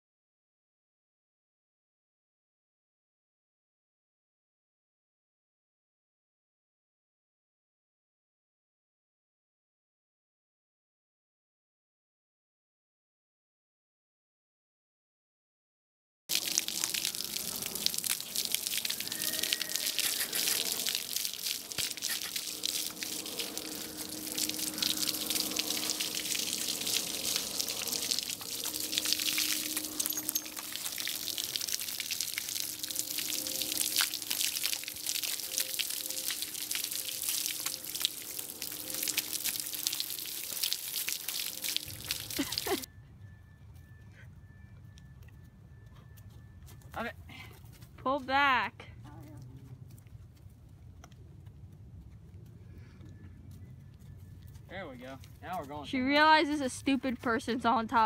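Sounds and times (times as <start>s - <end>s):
hose spraying water: 16.3s - 42.9s
water splashing and dripping: 16.3s - 42.9s.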